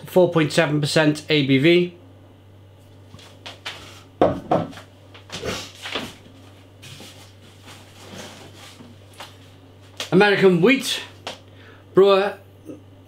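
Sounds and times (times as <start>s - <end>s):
cardboard box scraping and shuffling: 6.8s - 9.0s.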